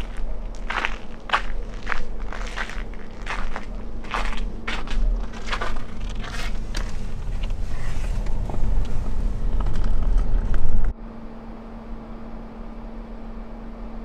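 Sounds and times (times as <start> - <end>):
footsteps crunching in snow: 0.0 - 10.7
steady low rumble: 0.0 - 14.0.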